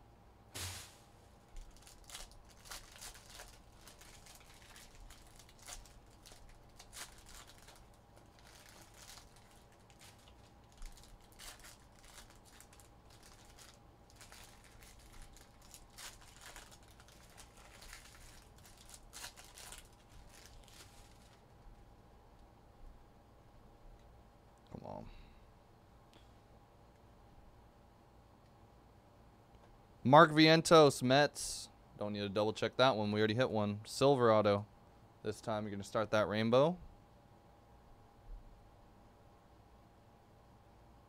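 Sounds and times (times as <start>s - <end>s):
foil wrappers crinkling: 0.6s - 21.6s.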